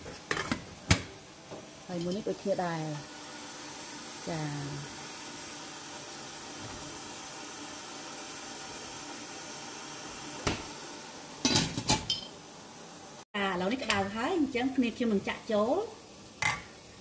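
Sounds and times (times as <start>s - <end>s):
steamer hissing: 1.8s - 13.2s
metal cookware clinking: 1.9s - 2.3s, 11.4s - 12.4s.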